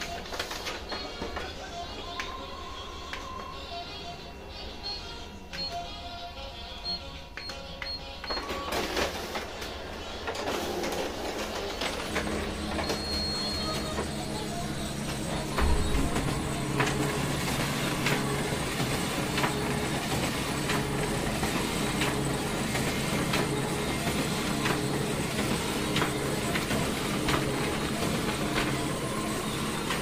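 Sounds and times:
copier motors humming: 0.0 - 30.0
copier sheet feed click: 11.8 - 30.0.

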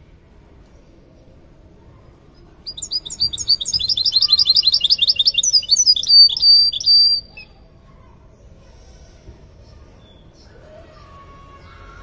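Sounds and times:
finch singing trill: 2.7 - 7.6.

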